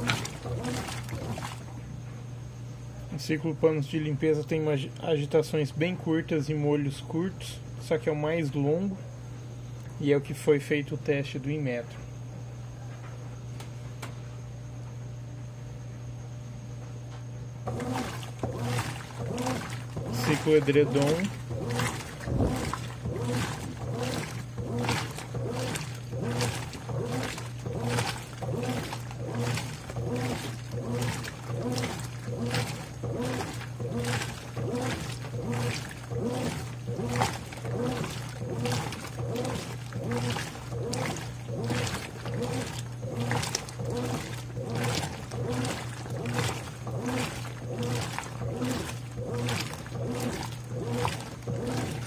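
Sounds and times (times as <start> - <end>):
agitator churning water: 0.0 - 2.2, 17.6 - 52.0
washing machine low hum: 0.0 - 52.0.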